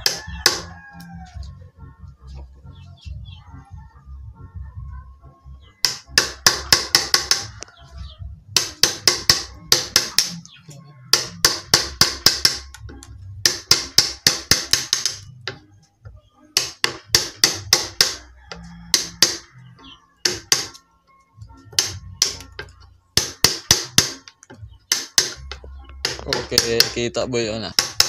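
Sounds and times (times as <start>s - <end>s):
hammer striking wood chisel: 0.0s - 0.7s, 5.8s - 7.6s, 8.5s - 10.4s, 11.1s - 15.6s, 16.6s - 19.5s, 20.2s - 20.8s, 21.7s - 28.0s.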